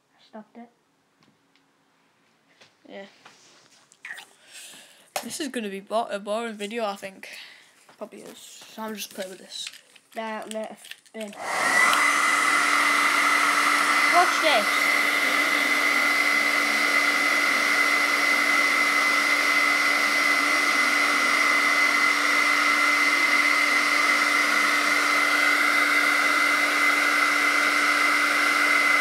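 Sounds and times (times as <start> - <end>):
hair dryer blowing air: 11.3 - 29.0.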